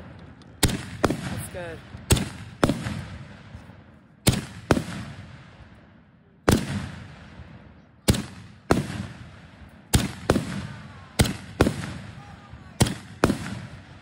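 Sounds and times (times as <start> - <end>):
fireworks bangs echoing: 0.0 - 14.0.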